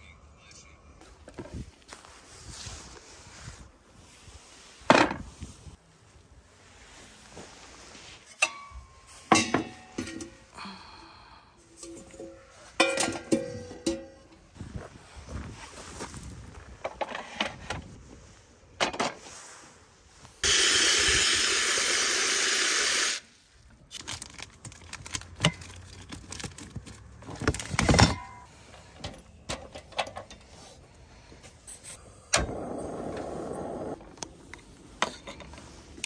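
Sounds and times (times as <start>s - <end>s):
loud steady hiss: 20.4s - 23.4s.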